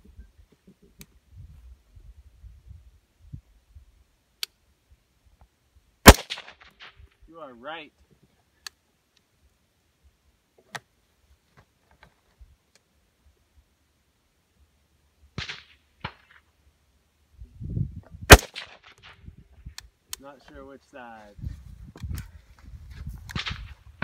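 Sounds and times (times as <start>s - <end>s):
rifle shot: 6.0s - 7.0s, 15.4s - 16.4s, 18.3s - 19.2s, 23.3s - 24.0s
echoing cracks: 6.1s - 7.0s, 15.4s - 16.5s, 18.3s - 19.2s.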